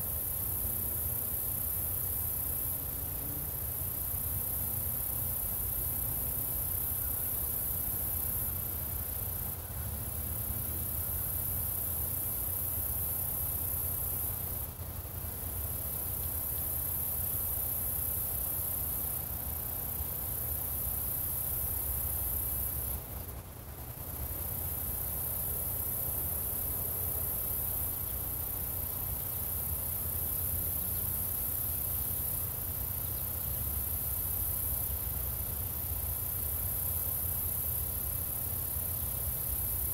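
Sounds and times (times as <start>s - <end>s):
crickets chirping: 0.0s - 39.9s.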